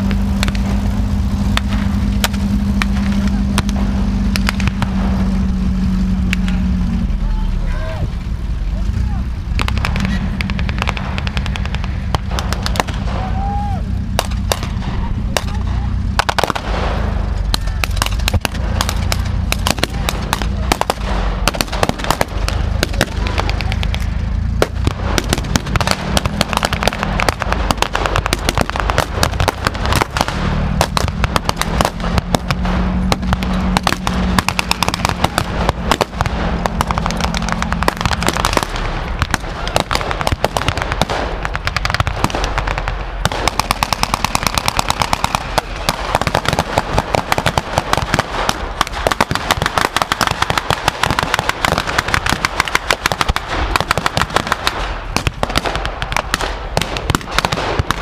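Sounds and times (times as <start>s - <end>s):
rifle shots: 0.0s - 6.7s, 9.5s - 58.0s
low steady engine: 0.0s - 58.0s
machine-gun bursts: 25.1s - 56.4s.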